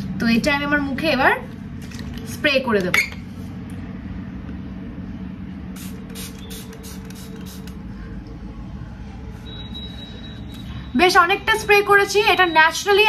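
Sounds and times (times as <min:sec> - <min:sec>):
low background hum: 0:00.0 - 0:13.0
spray bottle hissing: 0:05.8 - 0:07.8.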